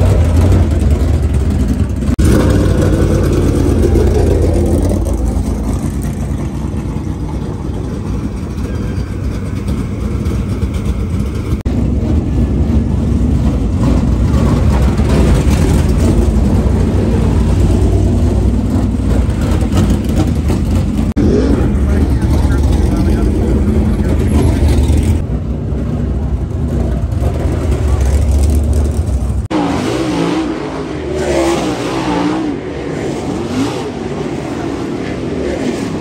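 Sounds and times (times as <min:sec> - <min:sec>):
race car engines running: 0:00.0 - 0:36.0.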